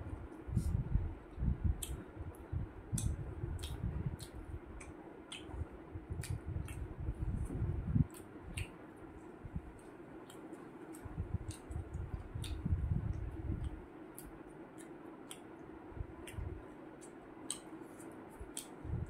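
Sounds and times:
faint steady hum: 0.0s - 19.0s
wet lip smacks and clicks: 1.8s - 2.1s, 2.9s - 6.9s, 8.1s - 8.8s, 9.7s - 18.8s
chewing and swallowing: 3.0s - 8.8s, 9.6s - 15.6s.

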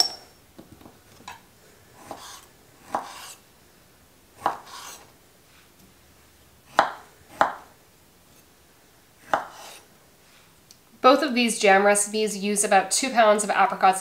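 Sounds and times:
knife scraping board: 2.0s - 3.4s, 4.4s - 5.1s, 9.2s - 9.9s.

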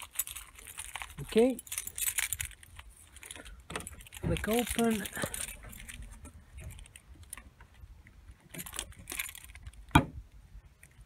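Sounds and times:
car key jangling and scraping: 0.0s - 7.5s.

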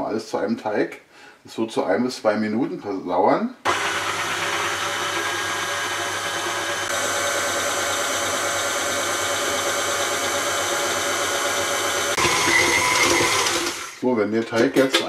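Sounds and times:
stand mixer motor whining: 3.7s - 14.0s.

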